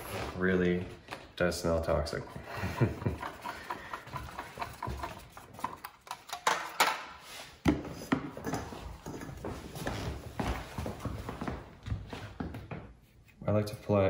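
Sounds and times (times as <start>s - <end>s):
stir stick scraping foil tray: 2.2s - 6.0s.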